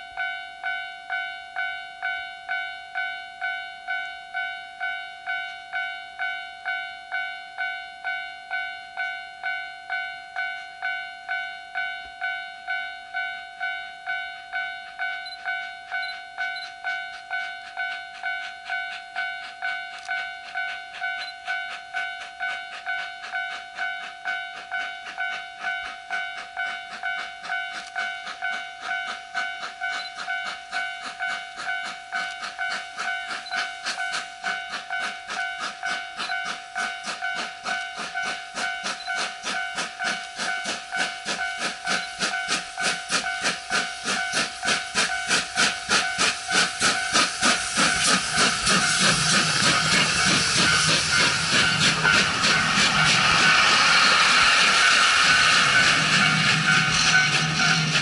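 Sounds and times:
level crossing warning bell: 0.0 - 54.4
steam locomotive chuffing: 13.1 - 58.0.

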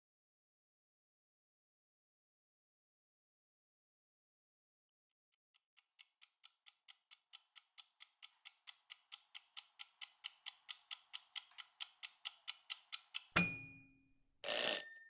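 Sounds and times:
timer ticking fast: 5.8 - 13.5.

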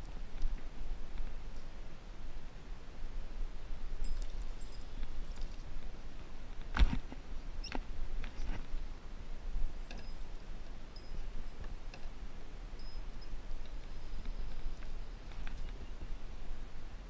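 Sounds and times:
faint short high squeaks: 9.9 - 10.3.

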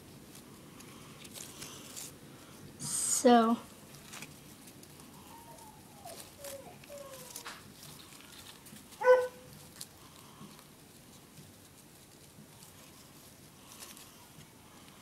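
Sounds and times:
paper rustling: 0.0 - 2.2, 3.8 - 14.4
high-pitched yelp: 9.0 - 9.5.

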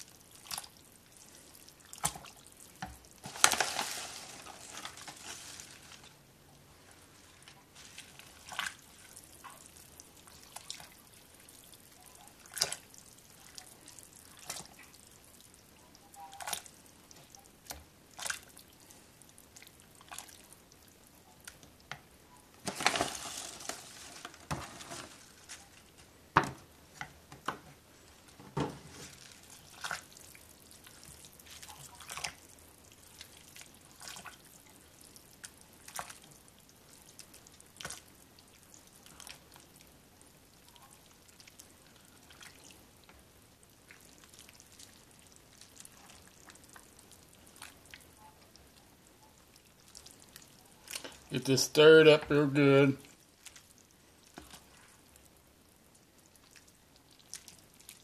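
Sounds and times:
small wet splashes: 0.3 - 0.8, 7.1 - 11.7, 12.4 - 15.0, 18.1 - 18.8, 19.5 - 20.5, 29.1 - 34.6
spinach leaves rustling: 3.2 - 6.2, 6.8 - 9.2, 22.6 - 26.2.

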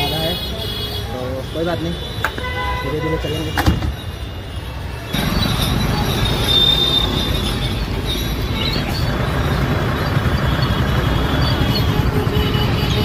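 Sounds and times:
busy street traffic: 0.0 - 13.0
vehicle engine and road rumble: 3.2 - 13.0.

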